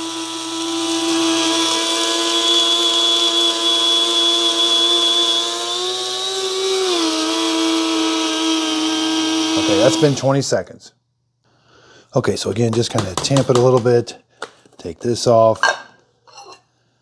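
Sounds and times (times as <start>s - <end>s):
coffee grinder motor whining: 0.0s - 10.4s.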